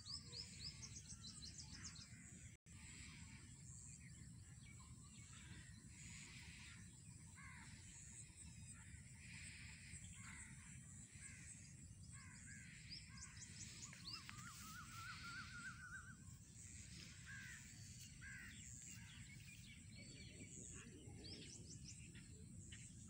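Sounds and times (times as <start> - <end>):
crow cawing: 17.1 - 19.2.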